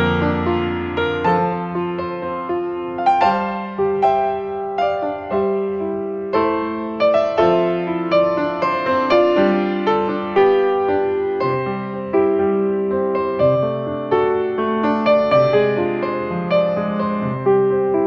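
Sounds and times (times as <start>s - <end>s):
slow piano melody: 0.0s - 18.0s.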